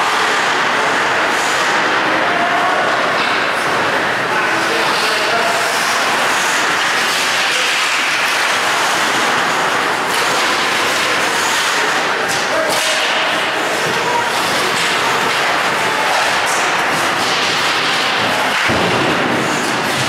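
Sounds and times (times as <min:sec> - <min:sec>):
hockey sticks and puck clacking: 0:00.0 - 0:20.0
skates scraping on ice: 0:04.6 - 0:20.0.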